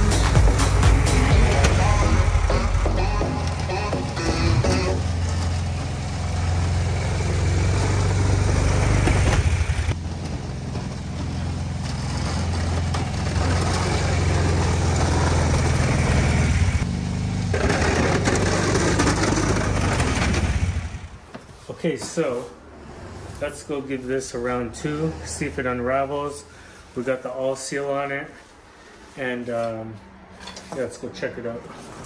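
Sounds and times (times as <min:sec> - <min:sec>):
atv engine running: 0:00.0 - 0:21.3.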